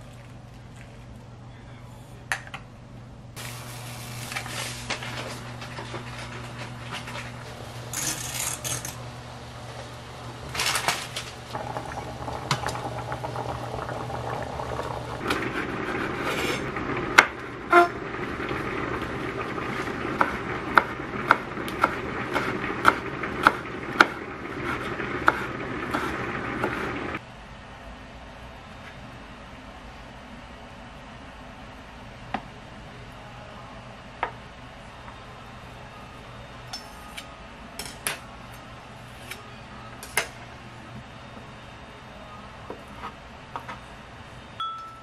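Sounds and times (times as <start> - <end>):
low steady hum: 0.0 - 45.0
water boiling in a pan: 3.4 - 27.2.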